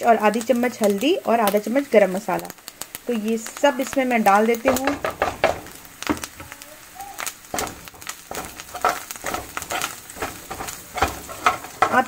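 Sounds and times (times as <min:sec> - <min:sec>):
spices sizzling in oil: 0:00.0 - 0:12.0
spoon scraping a frying pan: 0:07.5 - 0:12.0.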